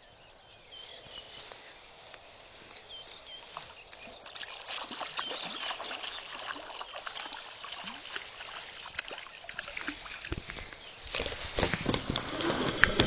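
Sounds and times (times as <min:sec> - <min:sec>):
water splashing and trickling: 0:02.3 - 0:13.0
rush of moving water: 0:04.2 - 0:13.0.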